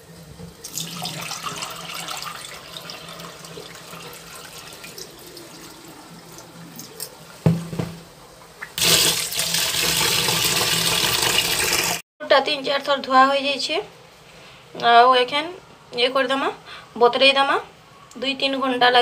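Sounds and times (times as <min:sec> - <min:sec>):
tap water gushing: 0:00.0 - 0:08.0, 0:08.6 - 0:12.0
water pouring into steel sink: 0:00.6 - 0:07.2, 0:08.8 - 0:12.0.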